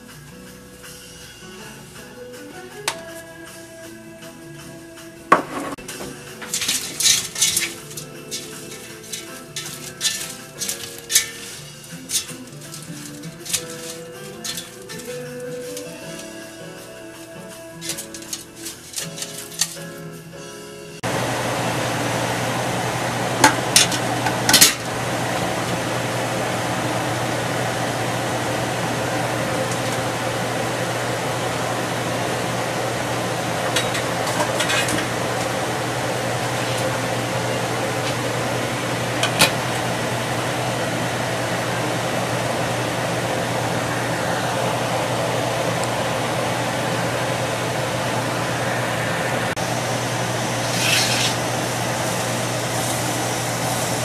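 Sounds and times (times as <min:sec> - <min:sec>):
steamer basket clanking on pot: 0:05.3 - 0:16.4, 0:17.8 - 0:19.8, 0:23.4 - 0:25.8, 0:33.4 - 0:40.1
boiling water and steam hissing: 0:05.8 - 0:19.9, 0:20.9 - 0:54.0
low hum: 0:21.0 - 0:54.0.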